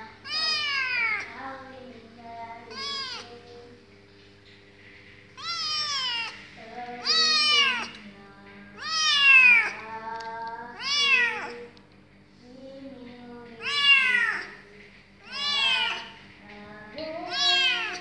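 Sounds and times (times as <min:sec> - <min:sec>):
kitten meowing: 0:00.2 - 0:01.3, 0:02.7 - 0:03.3, 0:05.4 - 0:06.4, 0:07.0 - 0:08.0, 0:08.8 - 0:09.8, 0:10.8 - 0:11.6, 0:13.6 - 0:14.5, 0:15.2 - 0:16.1, 0:17.3 - 0:18.0.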